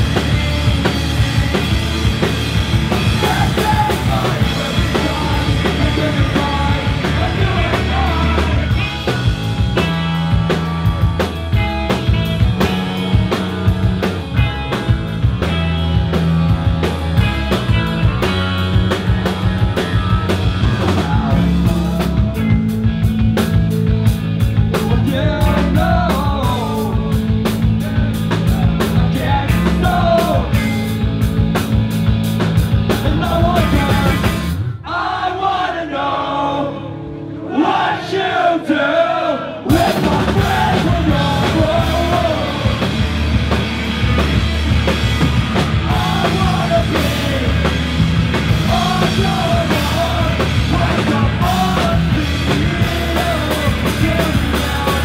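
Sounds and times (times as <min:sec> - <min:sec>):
drums with crashing cymbals: 0:00.0 - 0:34.7, 0:39.7 - 0:55.0
electric guitars: 0:00.0 - 0:34.8, 0:39.6 - 0:55.0
bass guitar: 0:00.0 - 0:55.0
voices singing: 0:01.4 - 0:11.4, 0:24.8 - 0:30.7, 0:33.0 - 0:44.0, 0:45.1 - 0:55.0.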